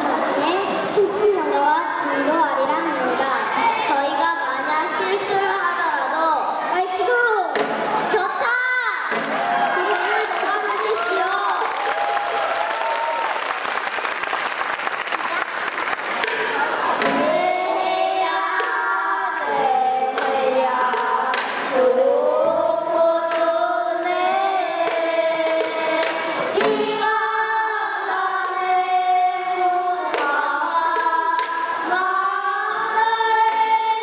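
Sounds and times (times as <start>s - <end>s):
children singing in unison: 16.2s - 34.0s.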